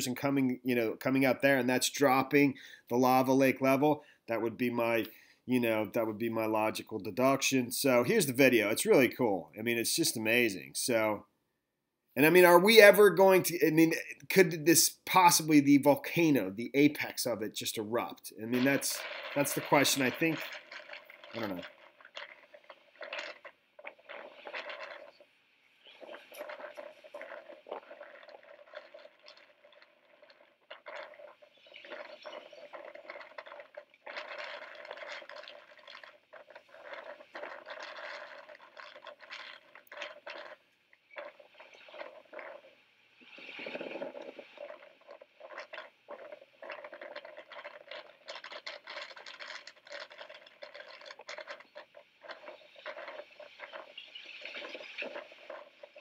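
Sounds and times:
lava crackling and splashing: 12.2s - 56.0s.

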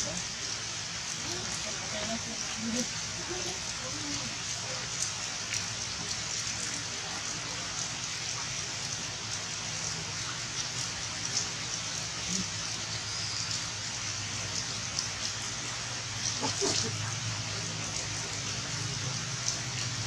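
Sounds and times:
heavy raindrops pattering: 0.0s - 20.0s
steady rain on leaves: 0.0s - 20.0s
faint voice-like sound: 1.2s - 5.0s, 6.5s - 8.1s, 11.4s - 12.9s.

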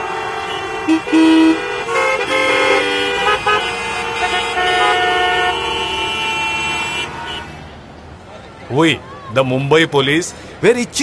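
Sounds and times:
vehicle horns honking: 0.0s - 7.8s.

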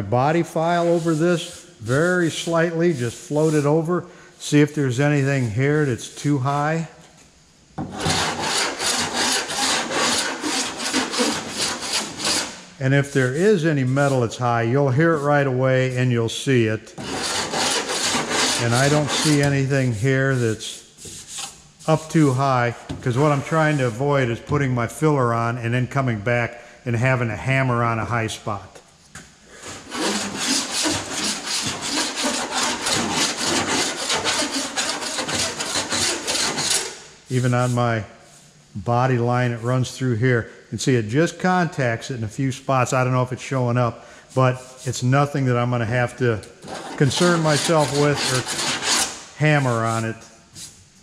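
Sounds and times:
file rasping on metal panel: 7.9s - 12.7s, 17.0s - 19.5s, 29.7s - 37.0s, 46.6s - 49.2s.

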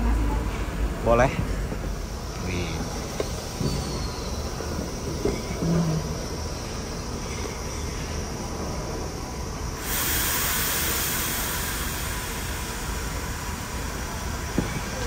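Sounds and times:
steady hissing: 1.8s - 15.0s.

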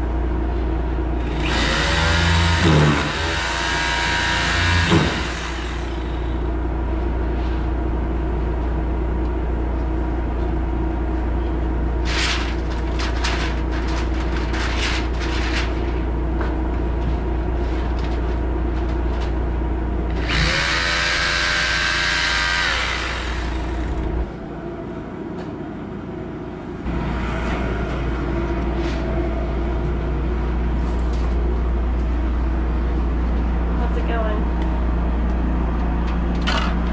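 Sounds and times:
low machine hum: 0.0s - 36.9s
power tool whining: 1.2s - 6.4s, 20.1s - 24.3s.

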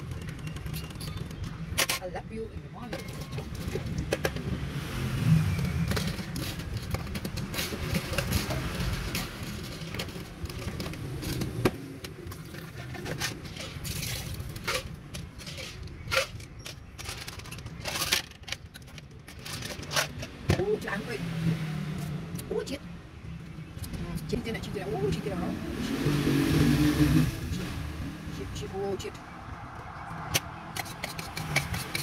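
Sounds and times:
plastic cups and ice clicking: 0.0s - 2.2s, 2.8s - 4.6s, 5.5s - 20.4s, 30.3s - 32.0s
street traffic engine rumble: 0.0s - 32.0s.

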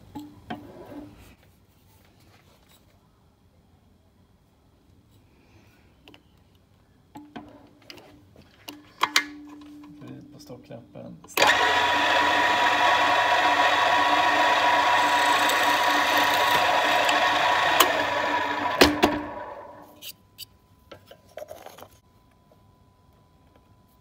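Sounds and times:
drill press drilling wood: 11.4s - 19.9s
motor spinning down: 11.4s - 19.9s.

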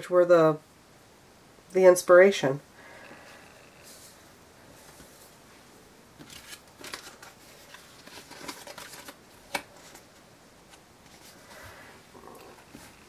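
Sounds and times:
faint rustling of yarn and cards: 3.0s - 13.0s.

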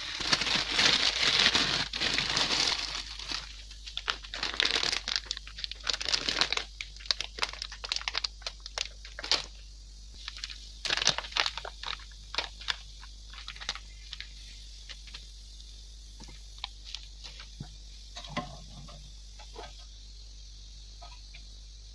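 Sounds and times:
plastic packet crinkling: 0.0s - 9.6s, 10.2s - 15.2s.

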